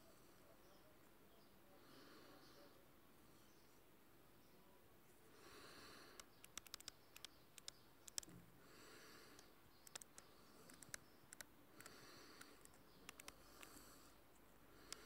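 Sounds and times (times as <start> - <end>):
faint breaths: 0.0 - 15.0
light clicks: 6.2 - 8.4, 9.3 - 13.8.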